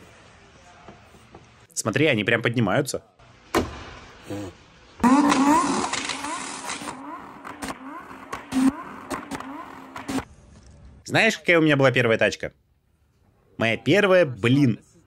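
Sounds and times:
car engine starting and revving: 5.0s - 10.3s.

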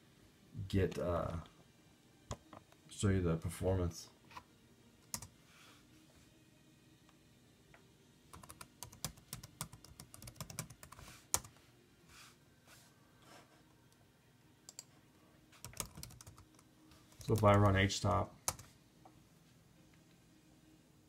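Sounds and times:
typing on laptop keyboard: 8.3s - 11.6s, 15.6s - 17.8s, 18.4s - 18.7s.

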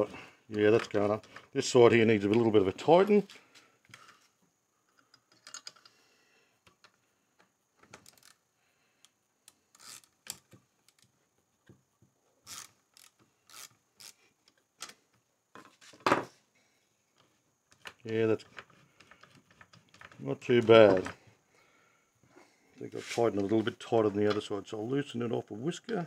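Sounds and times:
ratchet turning a bolt: 9.7s - 10.4s, 12.5s - 14.2s.

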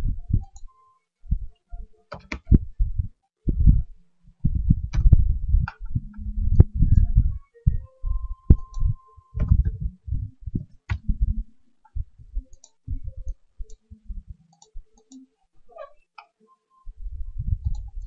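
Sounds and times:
keyboard and mouse clicks: 0.3s - 0.7s, 2.1s - 2.7s, 8.5s - 9.9s, 10.5s - 16.4s, 17.5s - 18.0s.

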